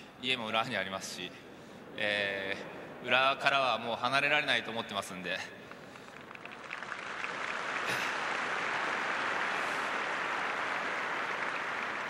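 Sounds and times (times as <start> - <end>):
stadium crowd applauding: 5.6 - 12.0.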